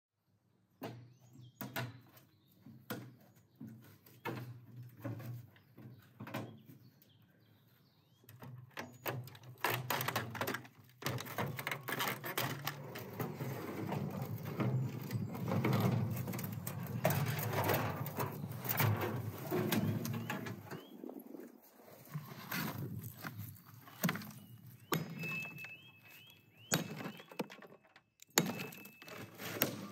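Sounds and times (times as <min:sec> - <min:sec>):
metal and plastic parts clattering: 0:08.9 - 0:20.9, 0:22.3 - 0:29.9.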